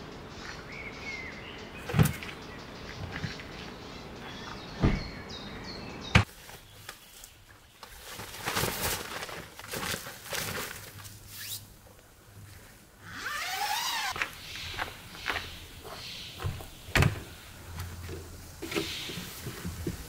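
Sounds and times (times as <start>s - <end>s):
nylon tent walls rustling: 6.2s - 20.0s.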